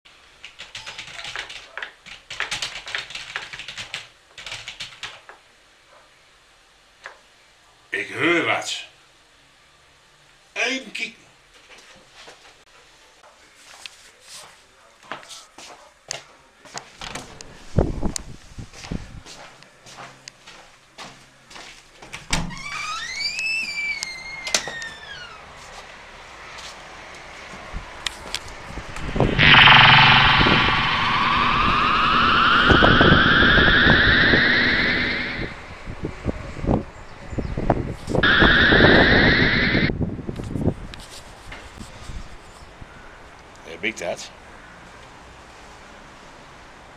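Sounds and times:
typing on computer keyboard: 0.4s - 5.3s.

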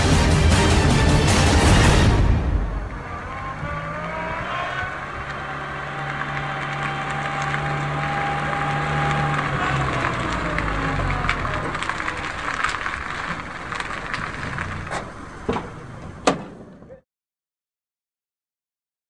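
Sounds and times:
van engine hum: 0.0s - 17.0s
tyres crunching on gravel: 7.1s - 16.2s.

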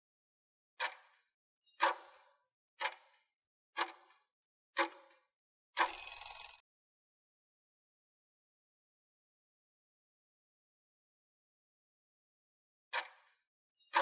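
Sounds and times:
clock ticks: 0.8s - 1.1s, 3.8s - 4.1s
stopwatch ring: 5.8s - 6.6s.

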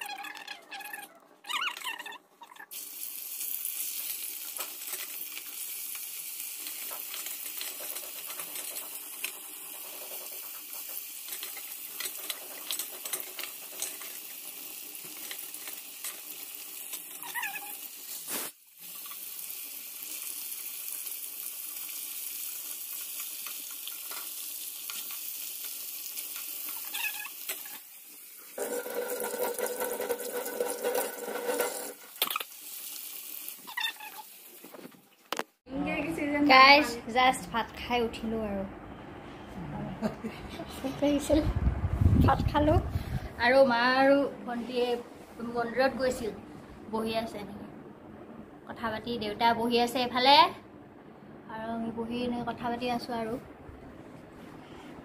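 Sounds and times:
fish sizzling in hot oil: 2.7s - 34.8s.

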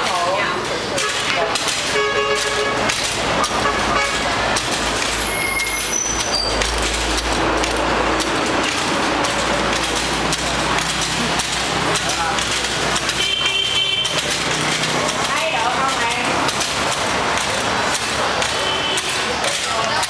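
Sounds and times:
vehicles passing: 0.0s - 20.0s
short high beeps: 5.2s - 6.6s.

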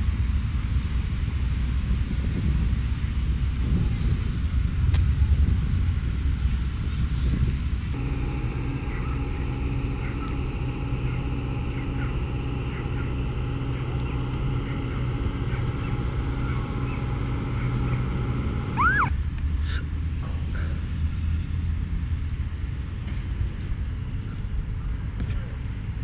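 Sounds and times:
low engine-like hum: 0.0s - 26.0s
rising and falling whistle: 18.7s - 19.2s.

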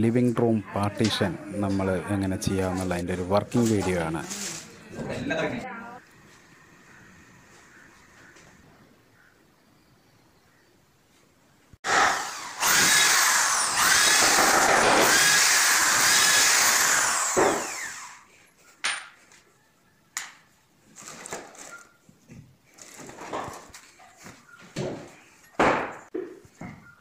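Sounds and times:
power drill drilling into wood: 11.8s - 18.3s.

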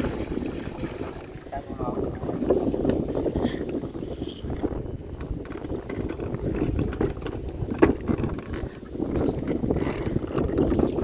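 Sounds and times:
wind rumbling on microphone: 0.0s - 11.0s
wooden boat knocking and splashing: 4.7s - 11.0s.

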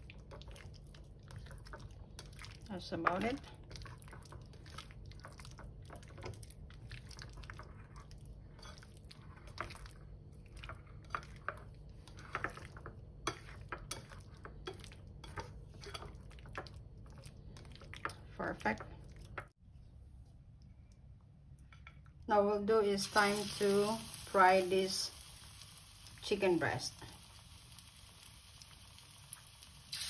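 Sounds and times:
wet squishing: 0.0s - 8.3s.

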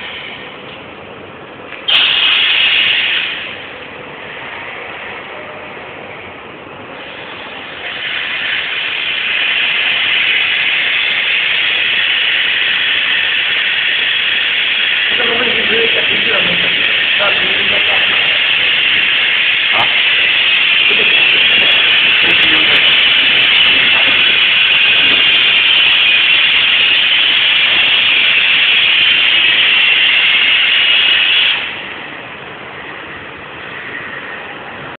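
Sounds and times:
test rig loud steady hiss: 7.0s - 34.8s.

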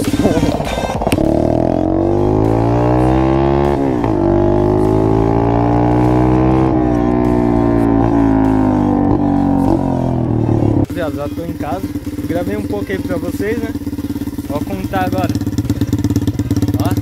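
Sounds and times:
dirt bike engine accelerating: 0.0s - 10.9s, 11.6s - 17.0s
background music with singing: 0.0s - 17.0s.

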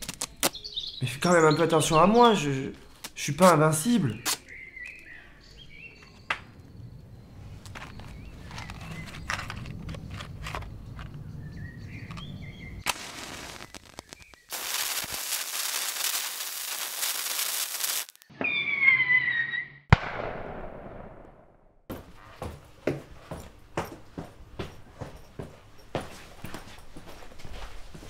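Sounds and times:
loud steady hiss: 12.8s - 18.2s
match struck and burning: 12.8s - 18.2s
falling whistle tone: 18.3s - 19.8s
sharp bang: 19.9s - 21.3s.

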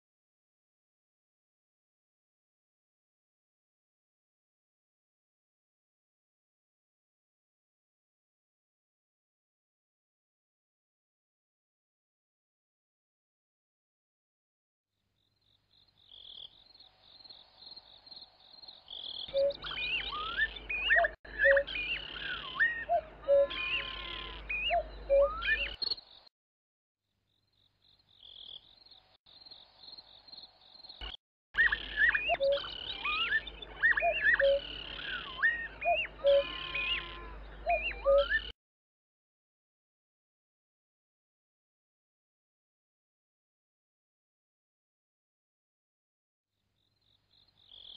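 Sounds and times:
birds chirping: 15.8s - 26.3s, 27.8s - 38.5s.

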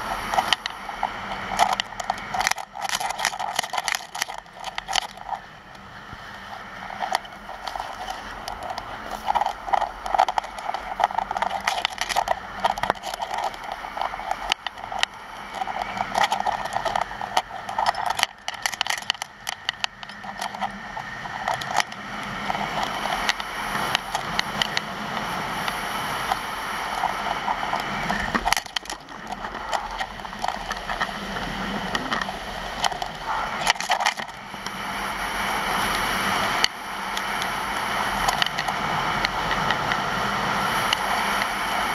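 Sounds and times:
skis scraping over packed snow: 0.0s - 18.1s, 18.7s - 33.6s
wind rumbling on microphone: 0.0s - 41.9s.

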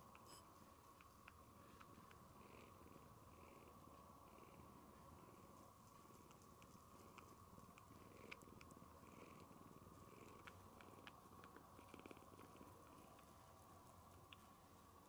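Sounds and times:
kitten purring: 0.0s - 15.0s.

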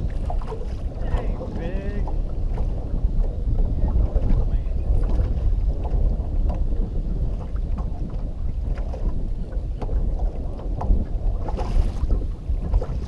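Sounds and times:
light knocks and splashes: 0.0s - 2.8s
water lapping against hull: 0.0s - 13.0s
wind buffeting microphone: 0.0s - 13.0s.

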